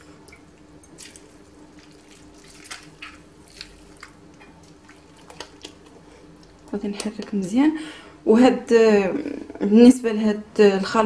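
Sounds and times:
faint steady hum: 0.0s - 11.0s
wet squelches and drips: 0.2s - 7.3s.

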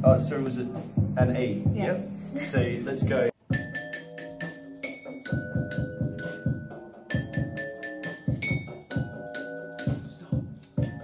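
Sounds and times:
steady low beat: 0.0s - 11.0s
glockenspiel notes: 3.5s - 11.0s.

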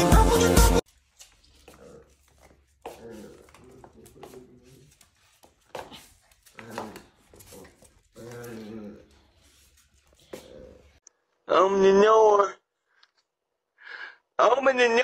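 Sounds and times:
paws tapping on hard floor: 1.3s - 8.7s
puppy growling: 1.7s - 4.9s, 6.4s - 9.5s.

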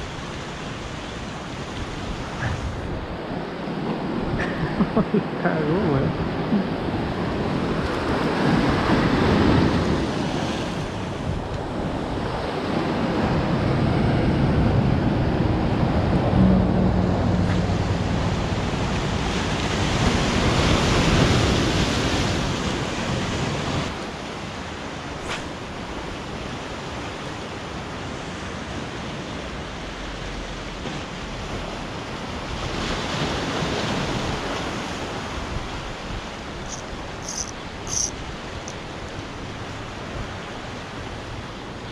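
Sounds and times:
ocean surf breaking on shore: 0.0s - 41.9s.

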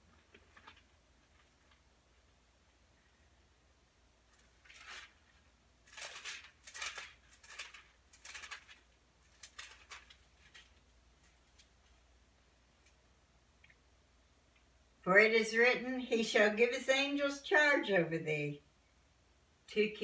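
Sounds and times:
thin pages turning: 0.0s - 1.9s, 4.3s - 12.0s.

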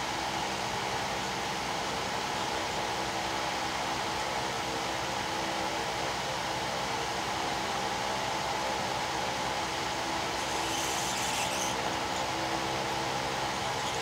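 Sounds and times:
faint fan hum: 0.0s - 14.0s
hot air station blowing: 6.8s - 14.0s.

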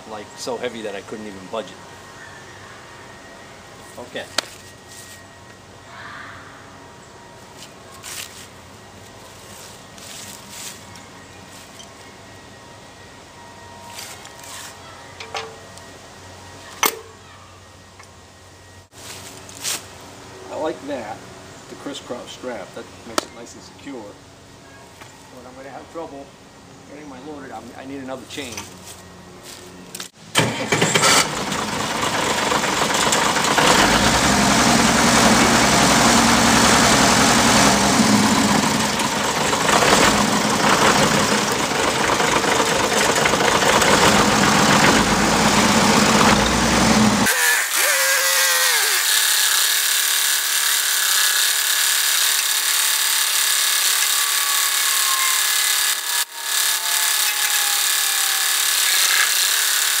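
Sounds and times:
tractor engine rumbling: 30.3s - 49.0s
whine with falling tone: 32.6s - 49.2s, 52.3s - 59.8s.

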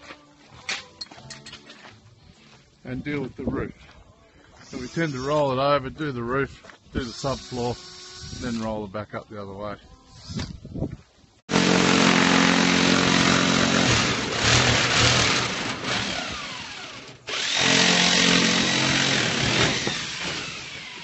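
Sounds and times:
power drill drilling rivets: 7.0s - 8.8s, 11.9s - 21.0s.

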